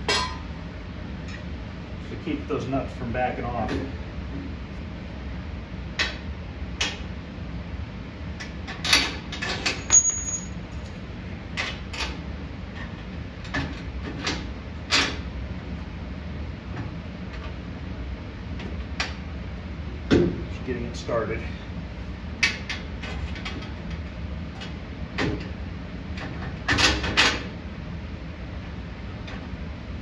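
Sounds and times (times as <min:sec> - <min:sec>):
high-pitched metal ring: 0:09.8 - 0:10.6.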